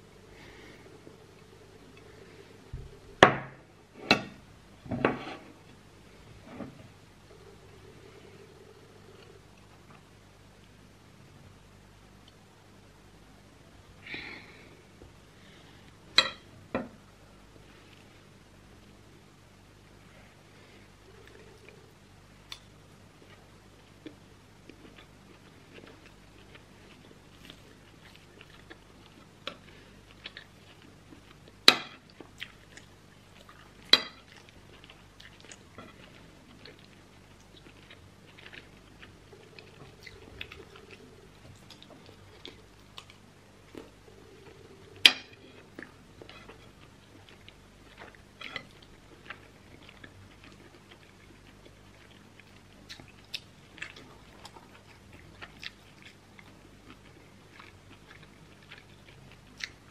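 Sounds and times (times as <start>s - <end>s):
chewing food: 22.5s - 59.9s.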